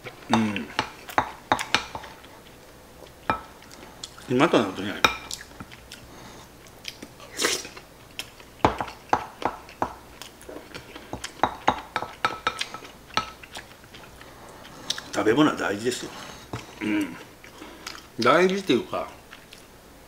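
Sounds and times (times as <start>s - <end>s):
chewing: 5.2s - 15.3s, 16.0s - 19.7s.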